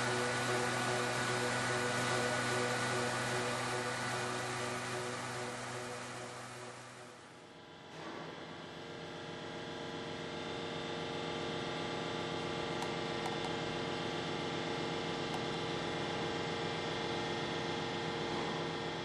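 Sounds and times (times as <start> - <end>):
engraving machine humming: 0.0 - 7.2.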